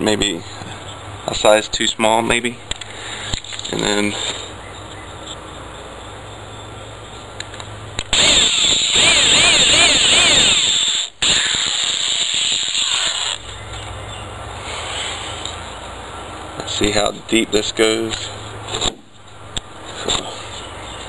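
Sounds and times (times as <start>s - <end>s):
electric drill boring into wood: 8.1s - 13.4s.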